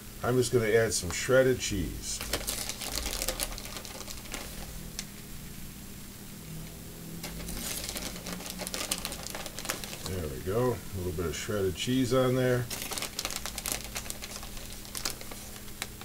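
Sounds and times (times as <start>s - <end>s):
plastic bag crinkling: 1.7s - 5.1s, 7.2s - 16.0s.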